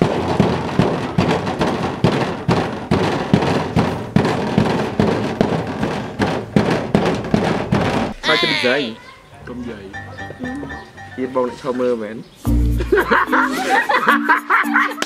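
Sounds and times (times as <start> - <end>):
pestle pounding in wooden mortar: 0.0 - 8.3
background music: 8.1 - 15.0.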